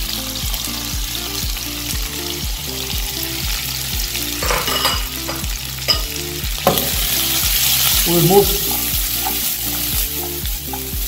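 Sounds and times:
food sizzling in a frying pan: 0.0s - 11.0s
low repeating beat: 5.0s - 11.0s.

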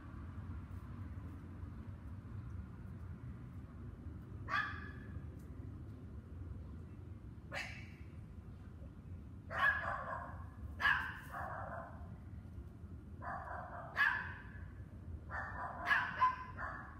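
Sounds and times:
dogs barking: 4.5s - 5.0s, 9.5s - 12.0s, 13.2s - 14.5s, 15.3s - 16.9s.

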